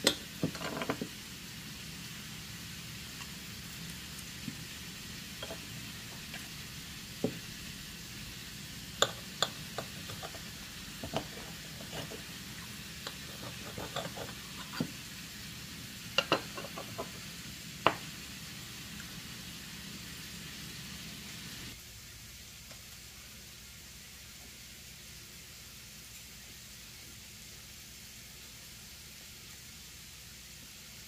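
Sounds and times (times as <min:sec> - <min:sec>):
cutlery scraping on skillet: 0:00.0 - 0:01.1, 0:05.4 - 0:06.5, 0:09.0 - 0:12.4, 0:13.0 - 0:15.0, 0:16.2 - 0:17.2
faint steady hiss: 0:00.0 - 0:31.0.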